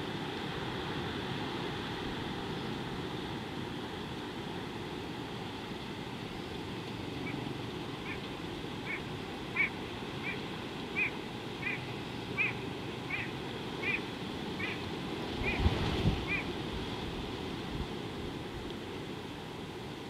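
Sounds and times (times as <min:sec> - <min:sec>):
faint bird calls: 0:07.1 - 0:16.5
wind on microphone: 0:15.3 - 0:18.6.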